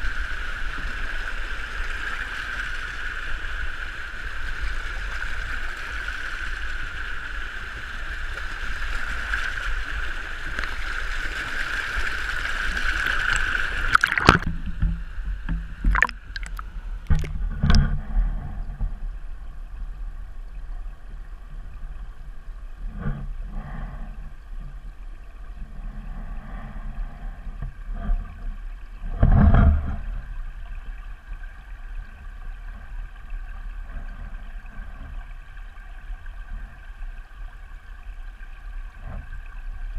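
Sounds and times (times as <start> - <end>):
water rushing down stone steps: 8.7 - 14.5
underwater knocks and bumps: 13.3 - 19.2, 22.8 - 23.4, 27.6 - 30.4
muffled underwater sound: 13.4 - 39.9.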